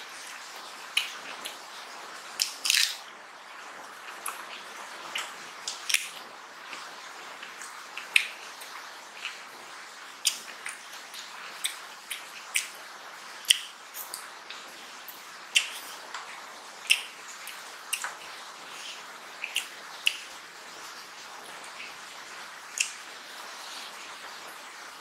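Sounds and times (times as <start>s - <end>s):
faint steady hiss: 0.0s - 25.0s
wet chewing and lip smacks: 4.1s - 9.4s, 10.2s - 12.8s, 16.8s - 20.3s, 22.7s - 23.0s.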